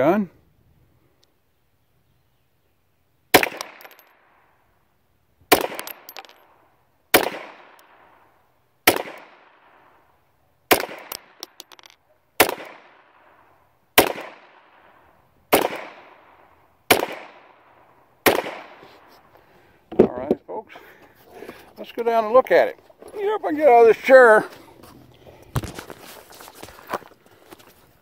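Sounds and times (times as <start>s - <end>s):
pistol shots with echo: 3.3s - 4.0s, 5.5s - 6.4s, 7.1s - 8.2s, 8.8s - 9.8s, 10.7s - 11.4s, 12.4s - 13.3s, 14.0s - 14.9s, 15.5s - 18.8s.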